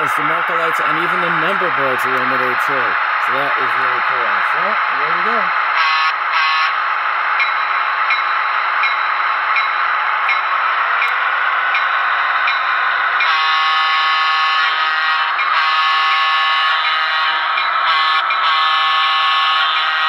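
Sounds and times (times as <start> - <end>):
model diesel locomotive running sound: 0.0 - 20.0
locomotive horn: 5.7 - 6.8, 13.2 - 20.0.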